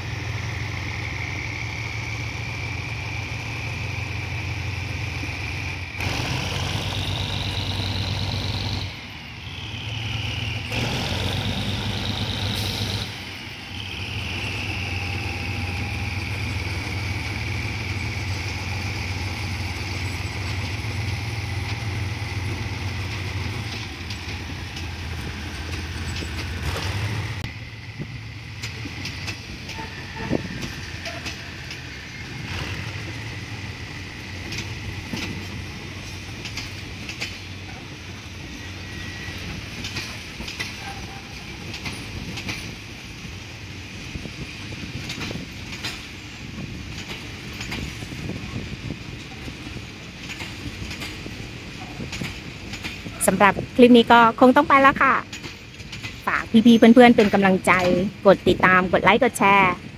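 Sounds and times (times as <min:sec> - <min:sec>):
diesel locomotive engine: 0:00.0 - 0:59.9
high wheel squeal: 0:12.6 - 0:16.5, 0:29.6 - 0:33.7, 0:37.6 - 0:39.7
wheels clicking over rail joints: 0:14.3 - 0:27.6, 0:28.4 - 0:59.9.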